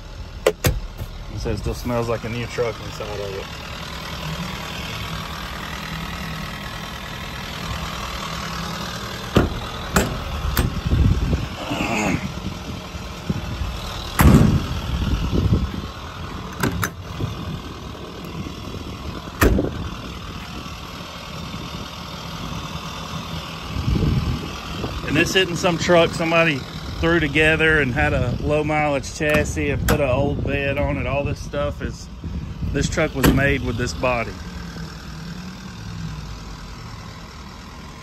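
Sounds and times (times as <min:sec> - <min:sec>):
steady low rumble: 0:00.0 - 0:38.0
truck door and latch clicks: 0:00.4 - 0:01.2, 0:09.3 - 0:10.8, 0:14.1 - 0:14.6, 0:16.5 - 0:17.0, 0:19.4 - 0:19.7, 0:29.2 - 0:30.1, 0:33.2 - 0:33.5.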